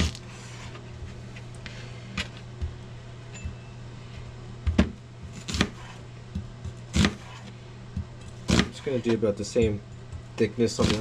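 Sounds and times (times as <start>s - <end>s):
steady low hum: 0.0s - 11.0s
knife chopping on cutting board: 4.7s - 9.7s, 10.8s - 11.0s.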